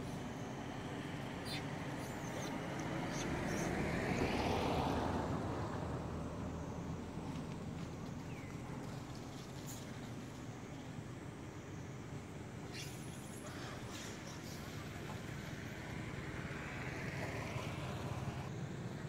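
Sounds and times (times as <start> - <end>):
vehicle passing: 0.6 - 7.5, 15.4 - 18.5.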